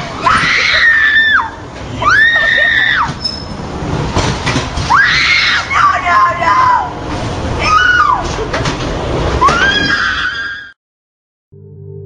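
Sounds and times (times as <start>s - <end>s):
high-pitched screams: 0.2s - 3.4s, 7.6s - 8.3s, 9.4s - 10.8s.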